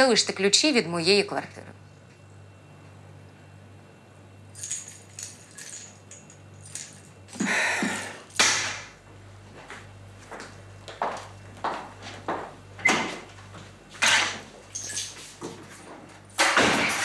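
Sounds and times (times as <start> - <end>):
keys jangling onto counter: 4.6 - 7.4, 14.6 - 16.4.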